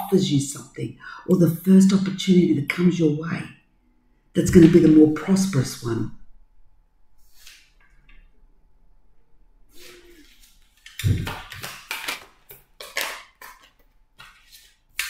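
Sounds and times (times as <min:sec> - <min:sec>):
cards rustling: 0:10.1 - 0:15.0
papery slaps of cards shuffling: 0:10.3 - 0:15.0.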